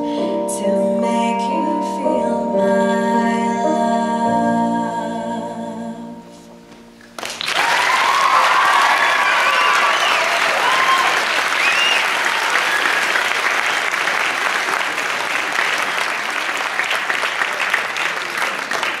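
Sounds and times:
audience applauding: 0:07.1 - 0:19.0
people cheering: 0:07.2 - 0:19.0.

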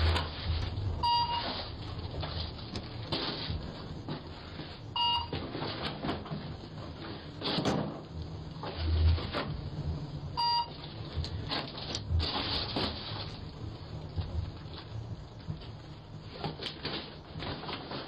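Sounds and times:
short electronic beeps: 0:01.0 - 0:01.6, 0:05.0 - 0:05.4, 0:10.4 - 0:10.8.

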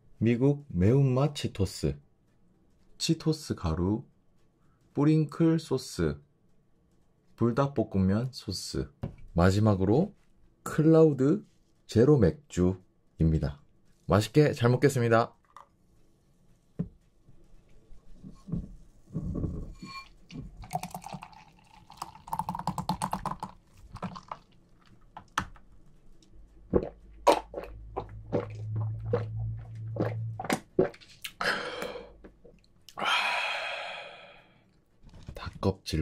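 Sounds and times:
beer pouring and fizzing: 0:19.8 - 0:25.3
breathy exhale: 0:31.4 - 0:32.2, 0:33.0 - 0:34.6.

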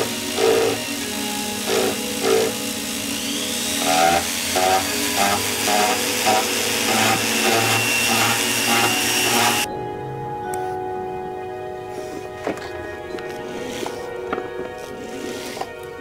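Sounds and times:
rotary tool grinding metal: 0:00.0 - 0:09.7, 0:13.3 - 0:15.8.

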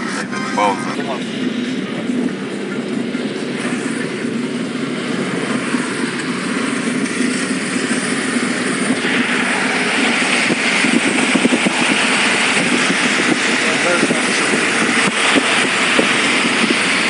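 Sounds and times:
car cabin road drone: 0:00.0 - 0:17.0
tyre hiss on wet road: 0:04.8 - 0:17.0.

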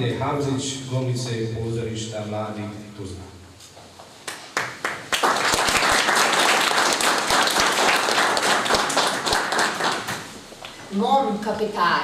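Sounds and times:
audience applauding: 0:04.3 - 0:10.4.

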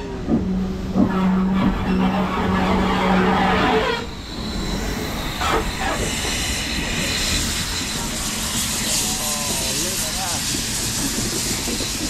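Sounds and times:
steam hissing: 0:02.9 - 0:12.0.

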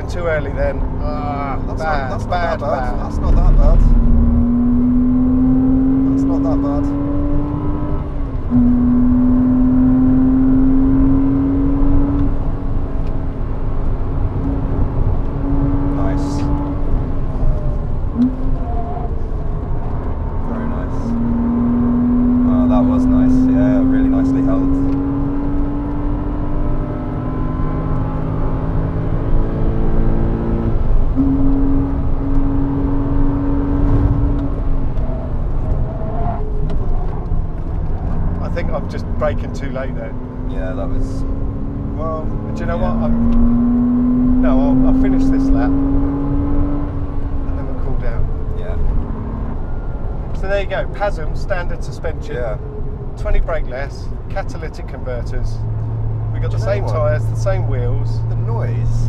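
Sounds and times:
car engine accelerating: 0:00.0 - 0:59.0
tyre and road noise: 0:00.0 - 0:59.0.

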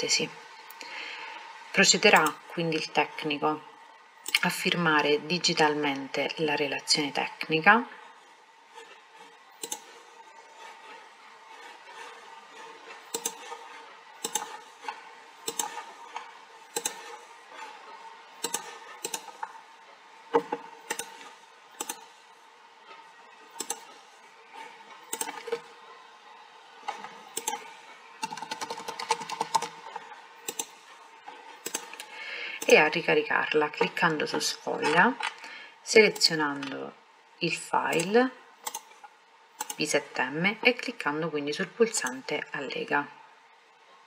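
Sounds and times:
faint steady hum: 0:00.0 - 0:44.0.

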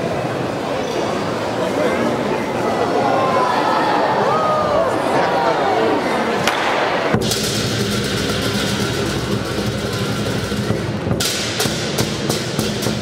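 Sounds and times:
lion drum beating: 0:07.1 - 0:13.0.

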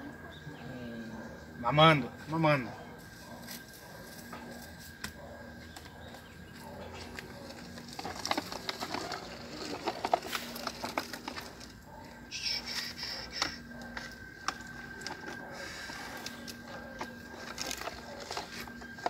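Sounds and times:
plastic toy trucks scraping dirt: 0:07.0 - 0:12.0, 0:12.7 - 0:19.0.

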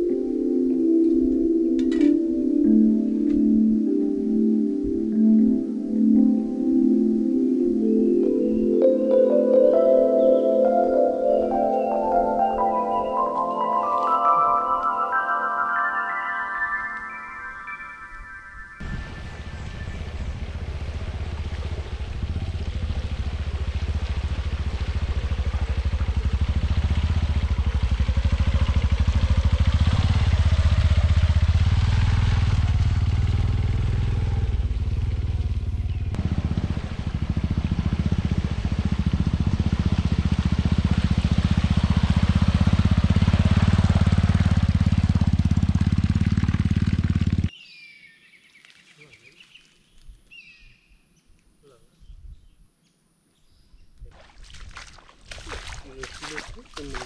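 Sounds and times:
motorcycle engine running: 0:18.8 - 0:47.5.

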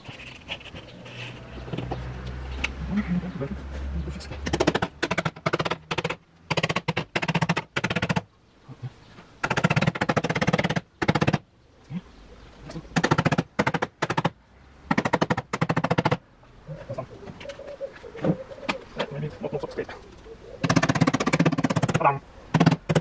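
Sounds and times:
small hammer tapping rapidly: 0:04.5 - 0:08.2, 0:14.9 - 0:16.2, 0:20.6 - 0:23.0.

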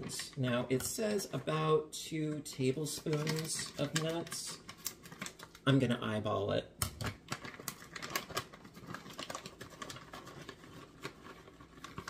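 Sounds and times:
plastic bag crinkling: 0:02.7 - 0:05.8, 0:07.0 - 0:12.0.

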